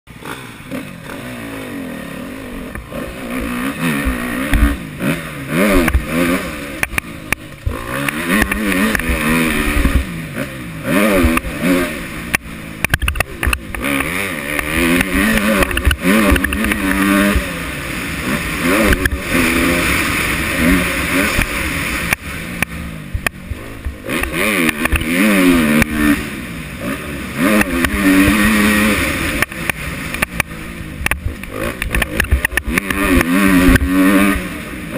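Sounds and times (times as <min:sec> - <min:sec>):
motocross engine revving: 0:00.1 - 0:34.9.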